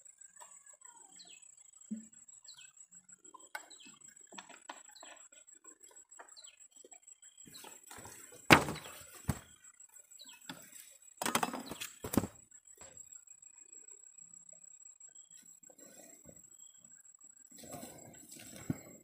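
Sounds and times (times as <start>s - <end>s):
rustling and knocking of basket: 7.6s - 9.6s, 11.2s - 12.4s.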